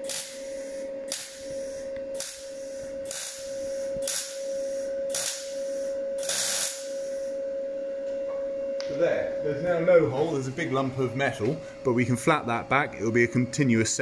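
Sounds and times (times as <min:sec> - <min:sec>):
welder bursts: 0:00.0 - 0:07.4
steady tone: 0:00.0 - 0:14.0.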